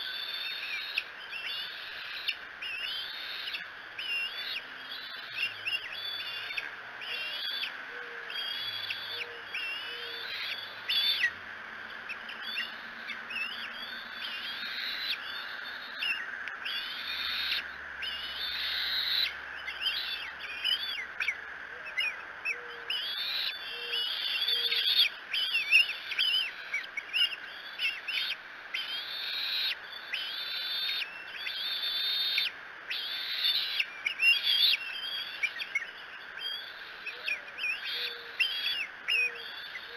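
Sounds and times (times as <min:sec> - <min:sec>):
birds chirping and whistling: 0:00.0 - 0:39.9.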